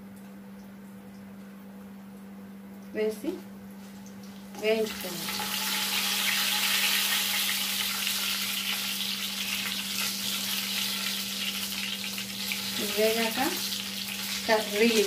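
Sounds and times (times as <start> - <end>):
seeds sizzling in hot oil: 4.9 - 15.0.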